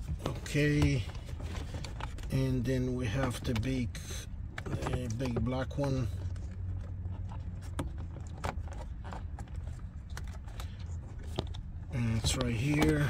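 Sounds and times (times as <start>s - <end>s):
hands clicking and rustling wiring: 4.4s - 13.0s.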